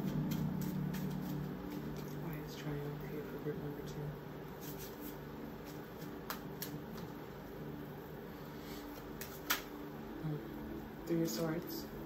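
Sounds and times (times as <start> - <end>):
cards being shuffled: 0.0 - 2.5, 4.6 - 7.2, 8.8 - 9.8
low steady hum: 0.0 - 12.0
card snaps: 6.2 - 7.1, 9.2 - 9.8.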